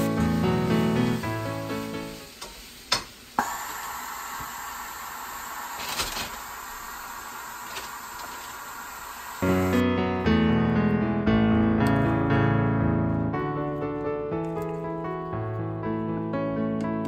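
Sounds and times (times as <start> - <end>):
background music: 0.0 - 2.2
rice cooker venting steam: 0.0 - 9.8.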